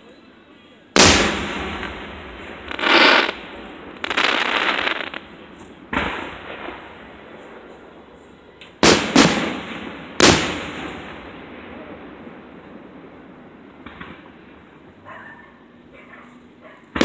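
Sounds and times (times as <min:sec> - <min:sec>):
firework shells booming: 0:01.0 - 0:14.8
rushing whoosh of fireworks: 0:01.0 - 0:15.0.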